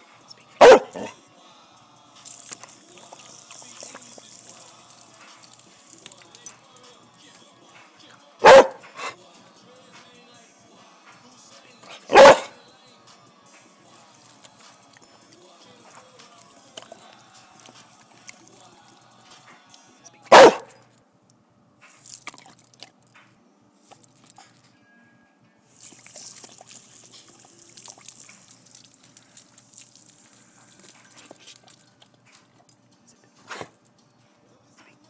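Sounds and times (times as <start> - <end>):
dog barking: 0.6 - 1.2, 8.4 - 9.2, 11.9 - 12.6, 20.3 - 20.8
garden hose spraying water: 25.7 - 29.0
small splashes and clicks: 25.8 - 28.9.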